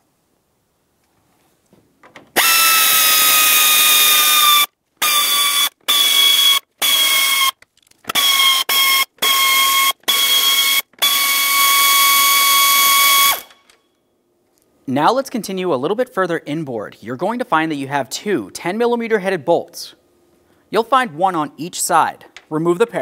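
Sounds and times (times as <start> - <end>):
power ratchet motor whine: 2.4 - 13.7.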